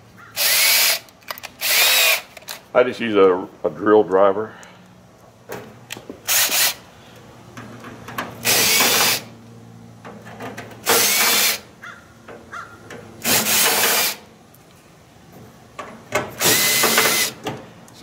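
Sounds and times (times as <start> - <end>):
cordless drill motor running: 0.4 - 1.0, 1.6 - 2.3, 6.3 - 6.8, 8.4 - 9.3, 10.8 - 11.6, 13.2 - 14.2, 16.4 - 17.4.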